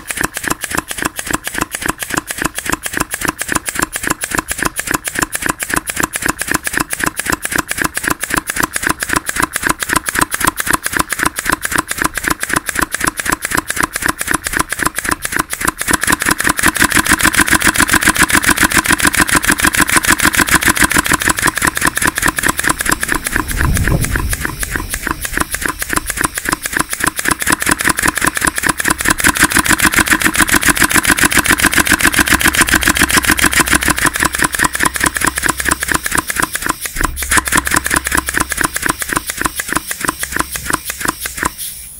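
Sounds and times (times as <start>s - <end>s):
air engine exhaust cracks: 0.0s - 41.8s
low thump: 22.8s - 25.6s.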